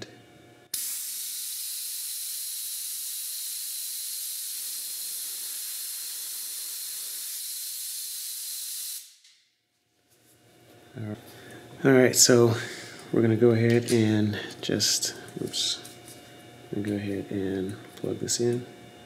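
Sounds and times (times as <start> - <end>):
compressed air hissing: 0.7 - 9.2.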